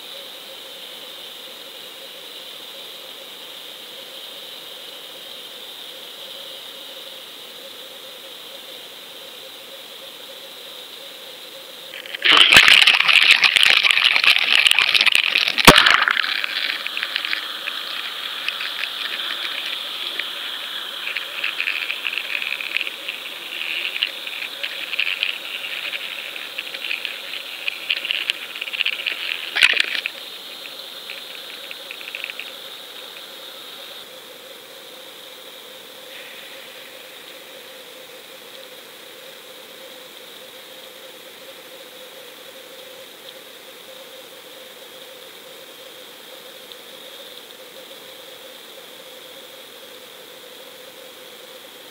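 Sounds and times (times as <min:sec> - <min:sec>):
soft scraping and ticking: 0:11.9 - 0:33.3
underwater hiss: 0:11.9 - 0:34.0, 0:36.0 - 0:38.0.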